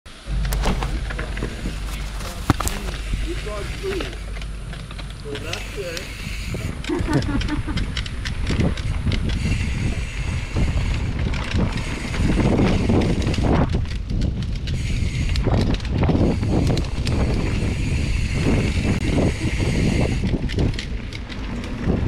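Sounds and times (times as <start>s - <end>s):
bike rattles and clicks: 0.1s - 22.0s
bike tyre noise: 0.1s - 22.0s
wind buffeting microphone: 0.1s - 22.0s.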